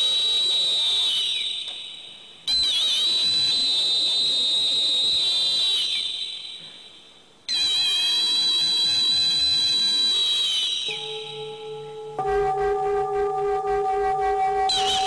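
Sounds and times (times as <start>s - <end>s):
high-pitched whistle: 0.0s - 6.6s, 7.5s - 15.0s
metal singing bowl ringing: 10.9s - 15.0s.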